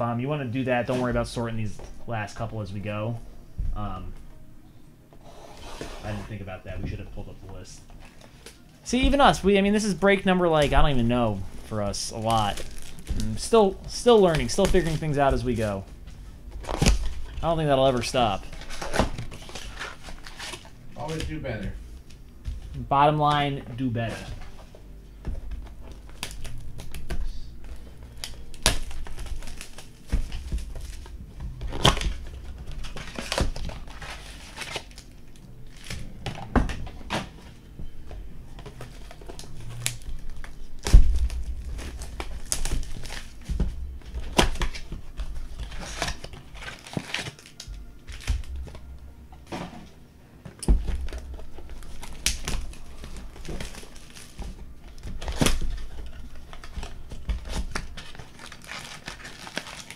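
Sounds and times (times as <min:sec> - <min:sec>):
packaging crinkling and tearing: 0:08.0 - 0:15.8, 0:16.5 - 0:21.2, 0:25.8 - 0:36.2, 0:38.6 - 0:48.9, 0:50.9 - 0:59.9.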